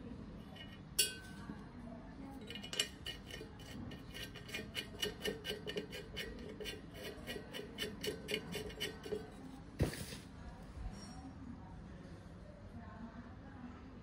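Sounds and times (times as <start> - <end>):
metal nut clicking and clinking: 2.4 - 3.4.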